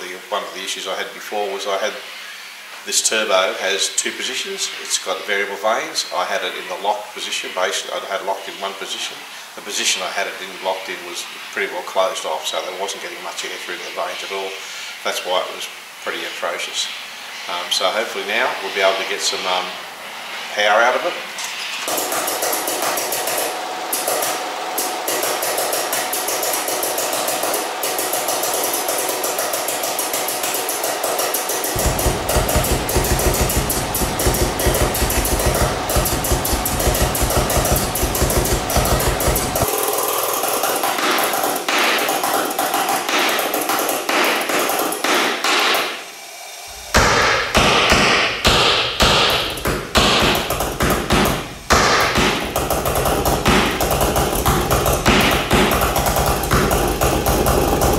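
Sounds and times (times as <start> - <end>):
steady tone: 31.7 - 40.0
engine firing sharp pulses: 31.7 - 40.1.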